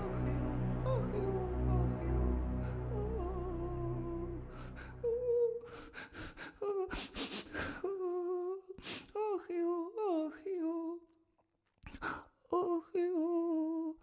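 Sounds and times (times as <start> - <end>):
soft instrumental music: 0.0 - 5.6
person humming slow notes: 0.0 - 5.8.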